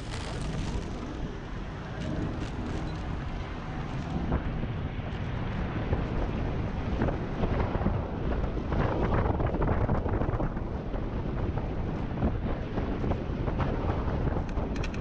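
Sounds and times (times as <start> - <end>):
road noise: 0.0 - 7.6
wind buffeting microphone: 0.0 - 15.0.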